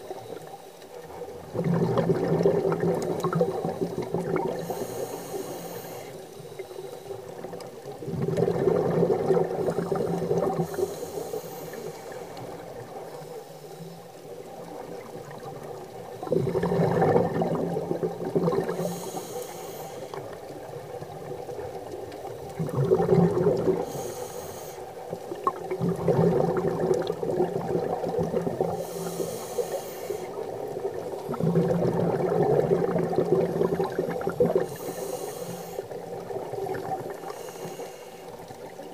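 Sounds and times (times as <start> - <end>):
exhaled bubbles gurgling: 0.0 - 38.9
regulator inhale hiss: 3.4 - 8.0, 9.7 - 15.0, 18.6 - 20.7, 23.8 - 25.3, 28.6 - 31.1, 34.6 - 36.3, 37.0 - 38.7.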